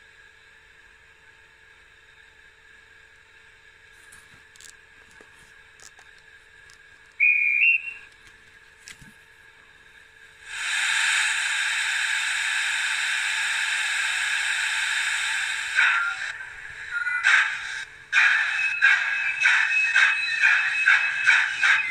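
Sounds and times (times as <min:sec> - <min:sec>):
steam hiss: 0:10.4 - 0:21.9
two-note train whistle: 0:15.8 - 0:21.9.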